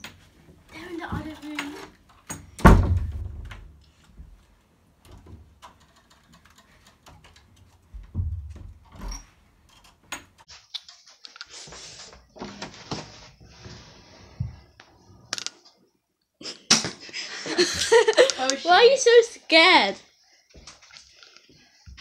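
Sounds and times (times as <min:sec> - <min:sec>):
door thud: 0:02.3 - 0:03.7
small clicks and knocks: 0:05.0 - 0:11.5.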